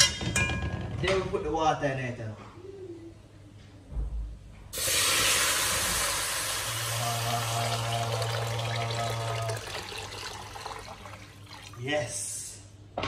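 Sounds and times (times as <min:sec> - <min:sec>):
water pouring into a metal pot: 0:04.8 - 0:11.8.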